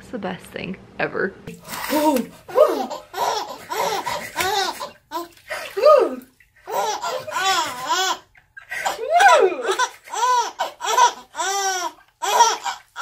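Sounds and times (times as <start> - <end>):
baby giggling: 2.5 - 5.3, 6.7 - 9.0, 9.6 - 13.0.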